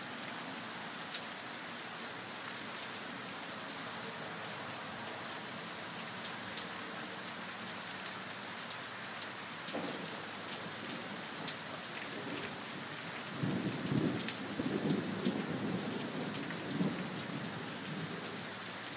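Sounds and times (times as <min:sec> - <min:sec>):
steady rain: 0:00.0 - 0:18.9
thunder rumbling: 0:13.3 - 0:18.2.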